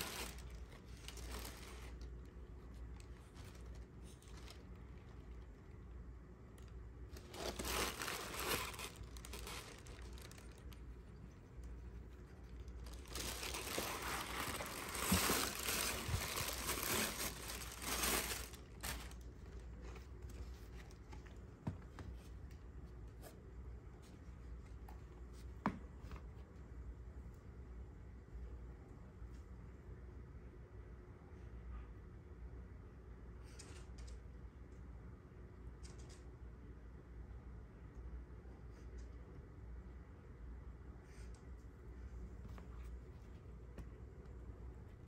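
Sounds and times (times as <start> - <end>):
packing wrap crinkling and rustling: 0.0 - 5.8, 6.6 - 21.4.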